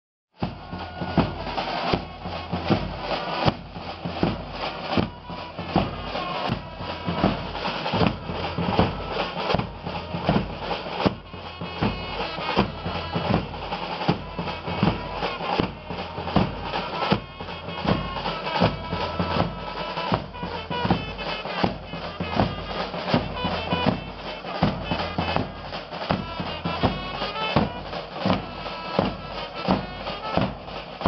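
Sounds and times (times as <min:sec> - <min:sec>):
bass drum beating: 0:00.4 - 0:30.8
held horn notes: 0:00.4 - 0:31.0
snare drums: 0:00.4 - 0:31.0.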